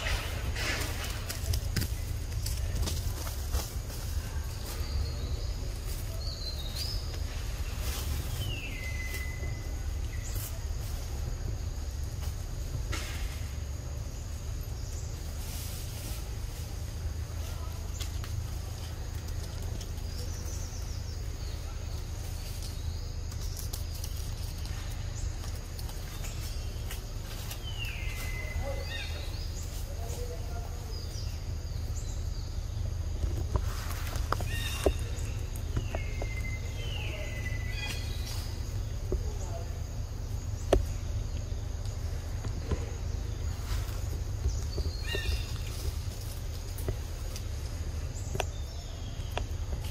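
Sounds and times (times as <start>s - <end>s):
low rumble: 0.0s - 49.9s
faint high chirps: 7.8s - 11.2s.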